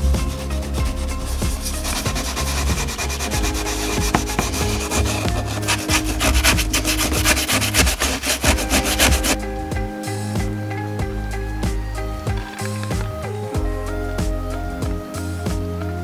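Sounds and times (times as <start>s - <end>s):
background music: 0.0s - 16.0s
abrasive pad scrubbing metal: 1.1s - 9.4s.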